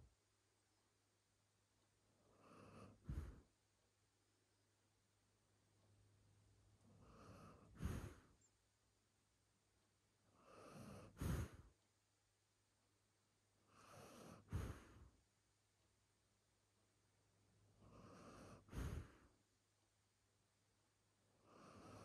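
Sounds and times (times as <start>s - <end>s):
dog breathing through nose: 2.8s - 3.4s, 7.2s - 8.3s, 10.8s - 11.7s, 13.9s - 15.1s, 18.0s - 19.3s.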